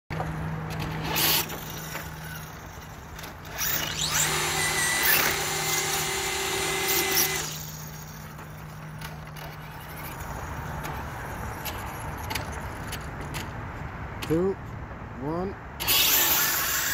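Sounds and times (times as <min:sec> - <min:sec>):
tyre noise on asphalt: 0:00.1 - 0:04.2, 0:07.0 - 0:14.4
electric motor whining: 0:00.8 - 0:11.1, 0:15.8 - 0:16.9.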